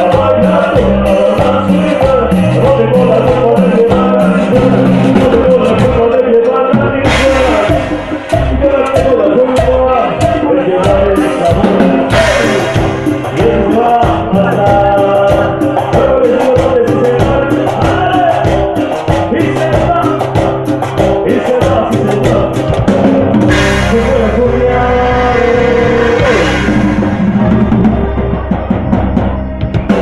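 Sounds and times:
person singing: 0.0s - 28.5s
live band playing: 0.0s - 30.0s
cymbal crash: 23.5s - 28.4s.

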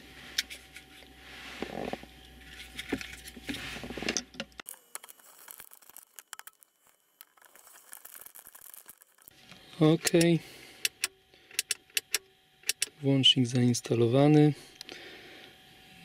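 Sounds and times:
rustling and scraping: 0.0s - 10.2s.

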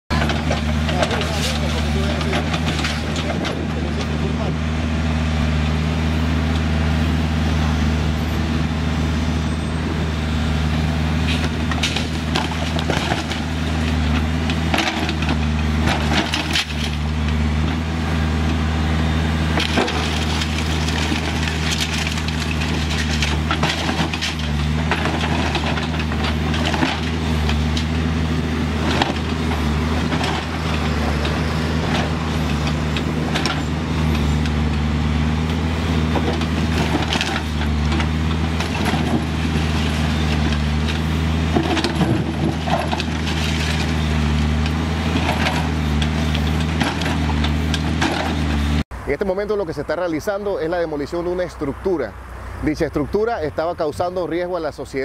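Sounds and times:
diesel engine running: 0.0s - 55.0s
concrete crunching and clatter: 0.1s - 4.5s, 11.1s - 18.7s, 19.4s - 48.8s.

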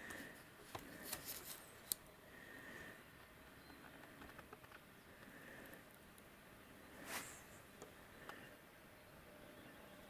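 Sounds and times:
faint rustles: 6.9s - 7.7s.

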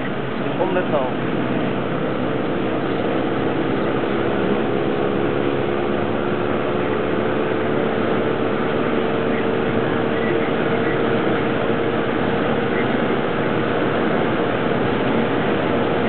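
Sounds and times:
car engine drone: 0.0s - 16.0s
road and wind noise: 0.0s - 16.0s.

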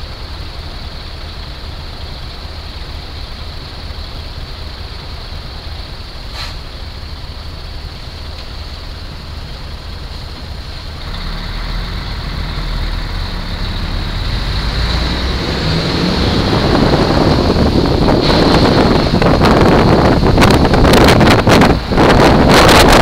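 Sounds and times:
motorcycle engine idling and pulling away: 0.0s - 20.8s
wind noise on microphone: 14.2s - 23.0s.

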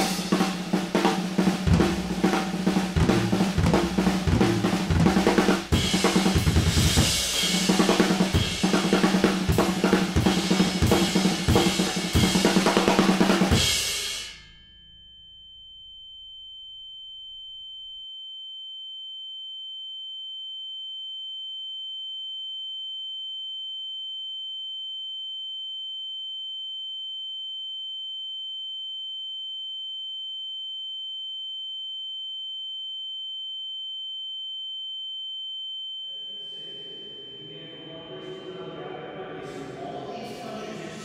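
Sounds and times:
fainter lower tone: 14.3s - 41.0s
high-pitched electronic tone: 36.1s - 38.8s.

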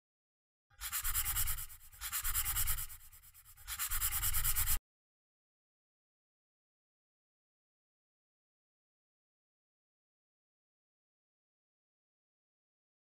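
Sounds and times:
pen scratching on paper: 0.8s - 4.8s.

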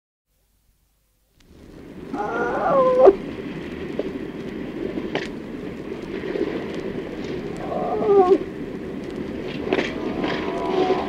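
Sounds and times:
higher animal call: 2.1s - 3.2s, 7.6s - 8.5s, 9.9s - 11.0s
cow mooing: 10.0s - 11.0s.

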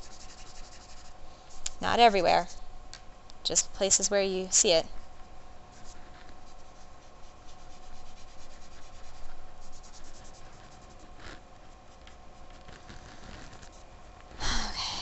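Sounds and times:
pastel stick scratching on paper: 0.0s - 2.6s, 5.7s - 13.8s.

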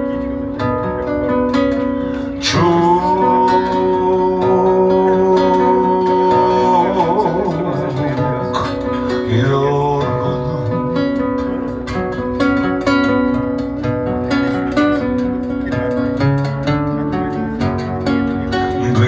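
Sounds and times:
acoustic guitar picking: 0.0s - 19.0s
man singing into a microphone: 2.2s - 11.6s, 18.5s - 19.0s.

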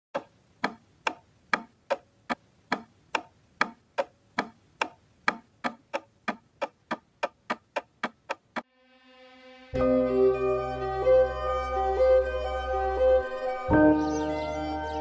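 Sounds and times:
clock-like ticking: 0.2s - 2.1s.

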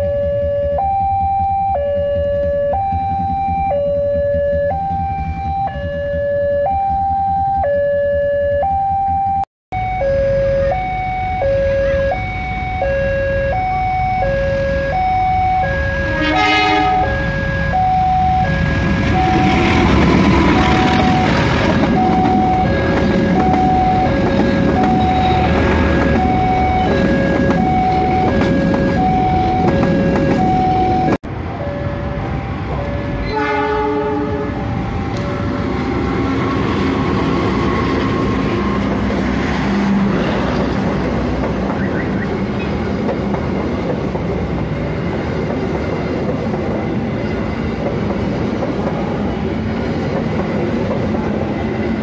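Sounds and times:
train passing: 0.0s - 8.6s, 9.8s - 52.0s
level crossing two-tone alarm: 0.0s - 36.4s
train horn toot: 15.9s - 19.8s, 33.2s - 35.3s.

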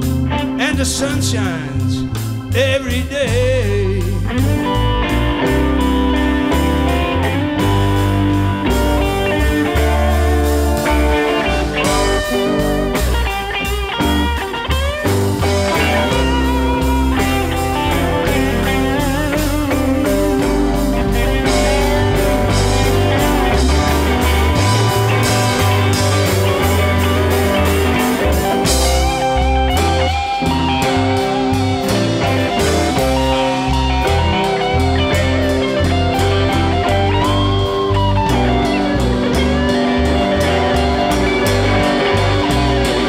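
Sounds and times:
bass guitar: 0.0s - 43.0s
drums and cymbals: 0.0s - 43.0s
electric guitar with vibrato: 0.0s - 43.0s
keyboard: 0.0s - 43.0s.

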